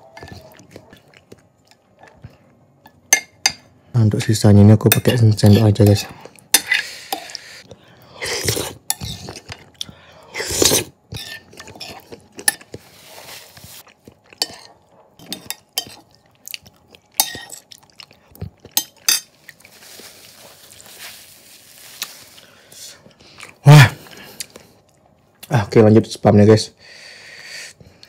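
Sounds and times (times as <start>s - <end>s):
chewing noodles: 0.0s - 2.6s, 7.2s - 25.4s
metal spoon scraping a plate: 6.6s - 7.4s.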